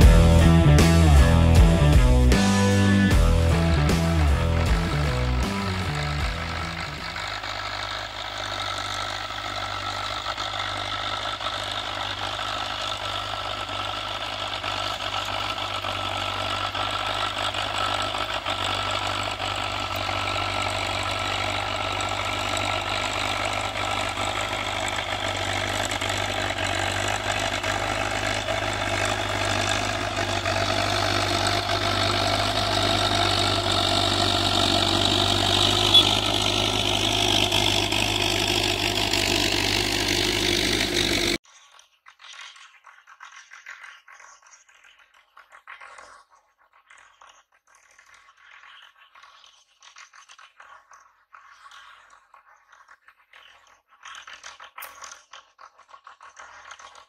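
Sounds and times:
tractor diesel engine running: 0:00.0 - 0:41.4.

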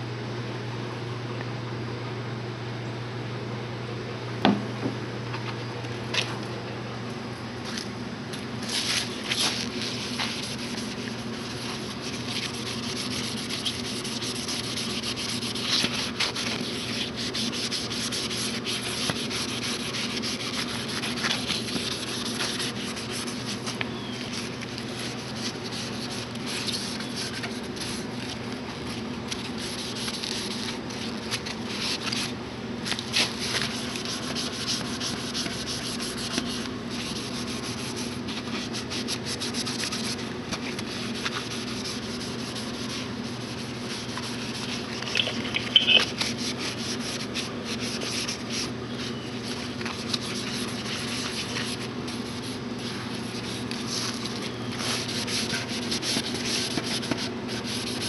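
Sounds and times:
sponge scrubbing metal: 0:08.8 - 0:23.7, 0:33.2 - 0:48.7, 0:49.4 - 0:58.0.

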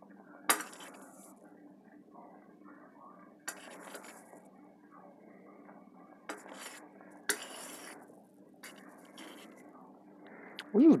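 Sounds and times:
metal spoon scraping a skillet: 0:00.5 - 0:01.3, 0:03.5 - 0:04.4, 0:06.3 - 0:09.6.

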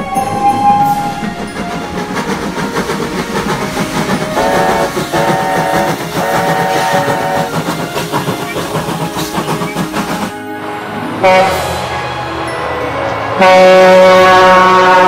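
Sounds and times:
steam locomotive whistle blasts: 0:00.0 - 0:01.6, 0:04.1 - 0:10.4, 0:11.2 - 0:11.9, 0:13.4 - 0:15.0
passing train rumble: 0:00.0 - 0:15.0.

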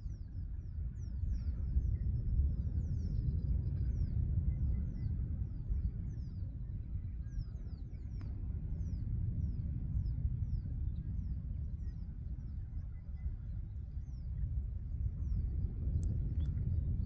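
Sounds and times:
wind rumbling on microphone: 0:00.0 - 0:17.0
faint click: 0:08.2 - 0:08.4, 0:15.9 - 0:16.6.

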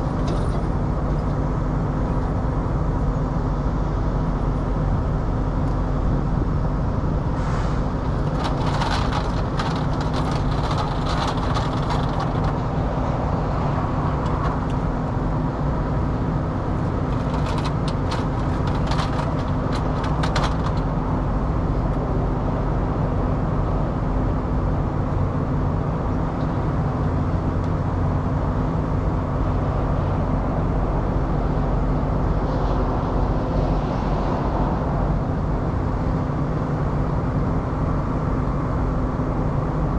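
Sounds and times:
diesel truck engine idling: 0:00.0 - 0:32.0
light clicking and rattling: 0:08.2 - 0:12.6, 0:17.1 - 0:20.9.

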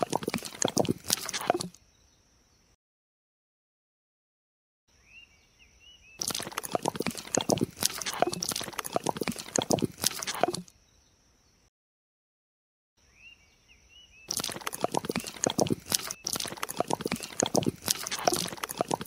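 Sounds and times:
wet cement splattering: 0:00.0 - 0:01.8, 0:06.2 - 0:10.7, 0:14.3 - 0:19.0.

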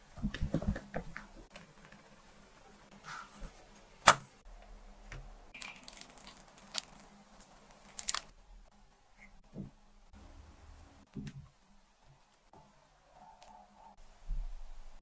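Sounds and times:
plastic piping bag crinkling: 0:05.5 - 0:08.3.

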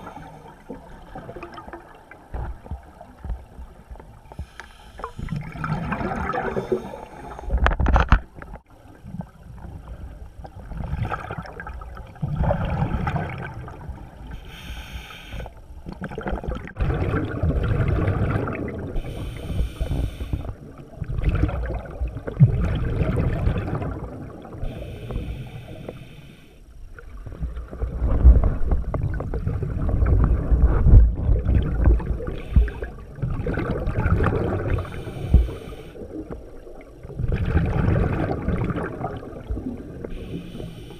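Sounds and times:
rumbling rush of exhaled bubbles: 0:05.2 - 0:07.9, 0:09.0 - 0:14.3, 0:15.9 - 0:19.2, 0:20.4 - 0:24.6, 0:27.0 - 0:40.2.

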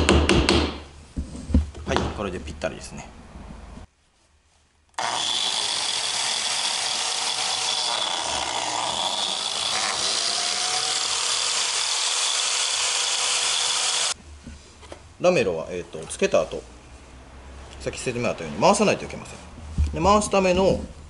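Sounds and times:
biscuit joiner cutting wood: 0:05.0 - 0:14.2.

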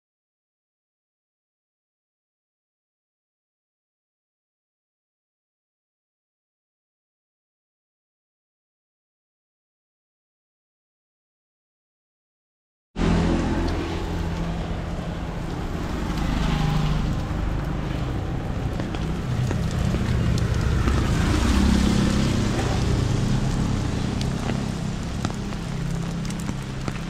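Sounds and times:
rain on wet street: 0:13.0 - 0:27.0
traffic rumble: 0:13.0 - 0:27.0.

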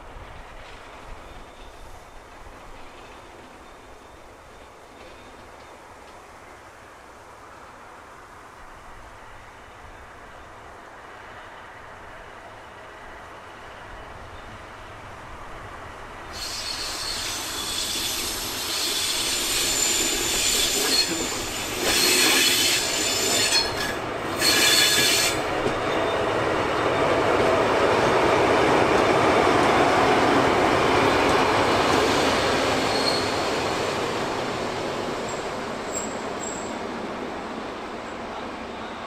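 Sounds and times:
train wheels squealing: 0:00.6 - 0:05.8, 0:16.3 - 0:27.3, 0:31.0 - 0:34.2, 0:35.2 - 0:36.9
wheel screeches: 0:16.4 - 0:25.5.

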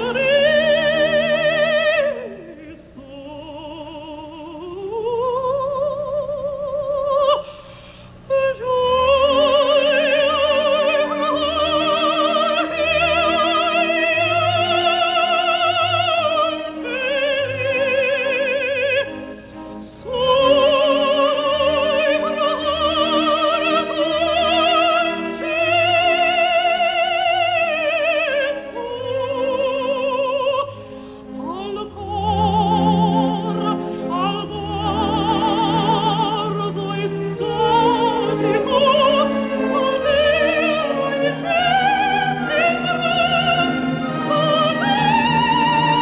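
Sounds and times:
soprano singing opera: 0:00.0 - 0:07.5, 0:08.2 - 0:46.0.

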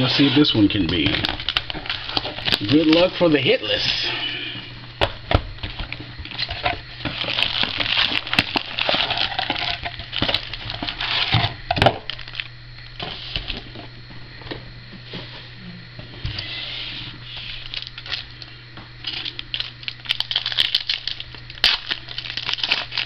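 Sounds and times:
foil packs rustling: 0:00.0 - 0:04.4, 0:05.6 - 0:13.7, 0:17.3 - 0:23.0.

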